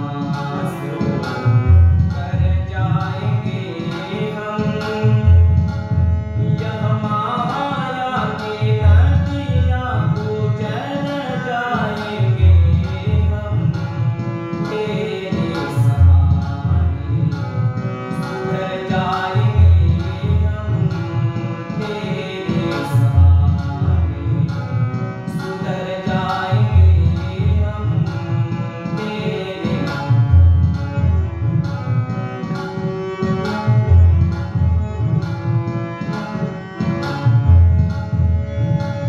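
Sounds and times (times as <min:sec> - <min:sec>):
man singing: 0:00.0 - 0:05.8, 0:06.4 - 0:31.2
harmonium chords: 0:00.0 - 0:39.0.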